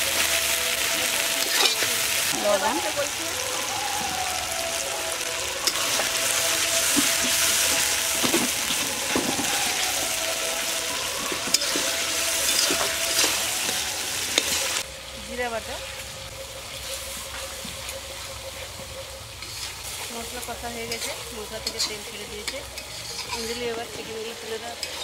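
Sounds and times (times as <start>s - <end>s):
spice paste sizzling in oil: 0.0s - 25.0s
metal spatula scraping pan: 1.4s - 1.9s, 11.3s - 13.7s, 19.4s - 24.2s.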